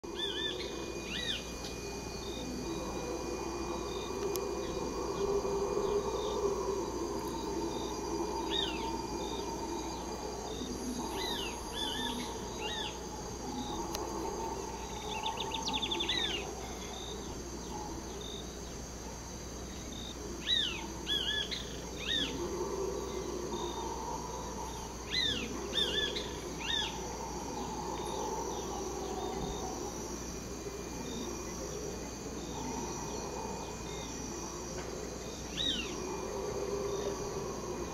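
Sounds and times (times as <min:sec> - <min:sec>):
howler monkeys roaring: 0:00.0 - 0:37.9
insects trilling: 0:00.0 - 0:37.9.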